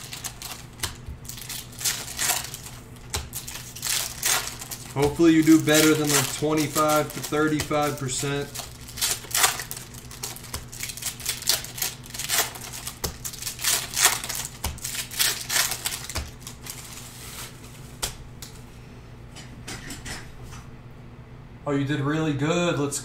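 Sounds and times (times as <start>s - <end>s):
foil wrapper crinkling: 0.0s - 18.0s
cards clicking and snapping: 0.1s - 16.8s.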